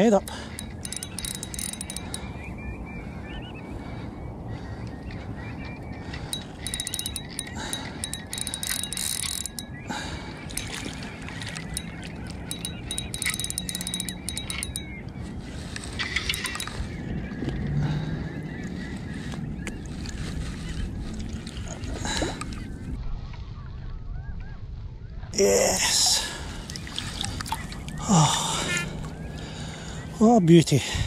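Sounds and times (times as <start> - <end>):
fishing reel clicking: 0.3 - 2.3, 6.3 - 9.8, 10.5 - 14.9, 16.0 - 16.8.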